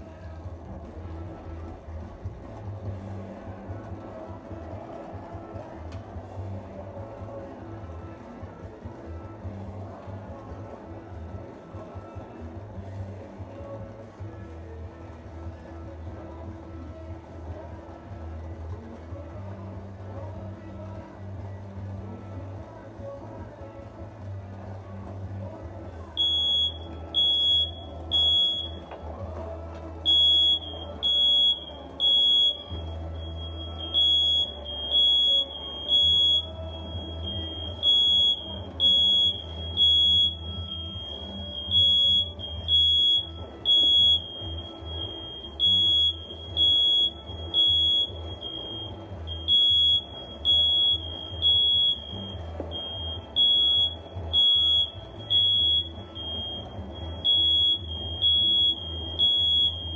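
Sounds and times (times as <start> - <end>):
smoke alarm beeping: 26.2 - 29.2, 30.0 - 59.9.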